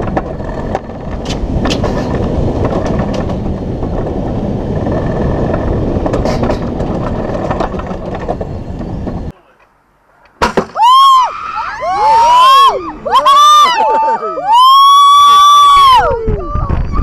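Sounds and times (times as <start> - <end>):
wheels rumbling on rail: 0.0 - 9.4.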